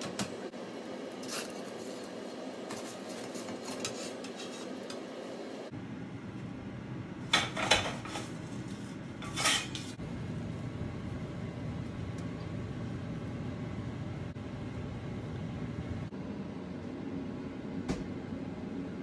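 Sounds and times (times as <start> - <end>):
steady low hum: 0.0 - 19.0
metal peel clattering on plates: 9.2 - 9.9.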